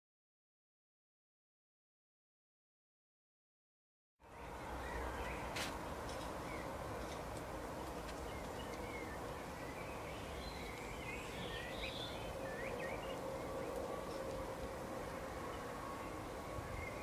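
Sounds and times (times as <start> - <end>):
small songbirds twittering: 4.2 - 14.5, 15.1 - 17.0
outdoor background hiss: 4.2 - 17.0.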